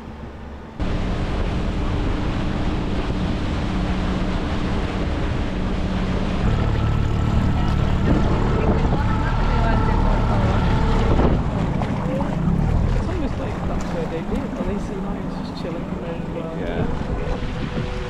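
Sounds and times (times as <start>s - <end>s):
boat engine running: 0.0s - 18.0s
rushing water: 0.0s - 18.0s
wind on the microphone: 7.9s - 14.7s, 16.6s - 18.0s.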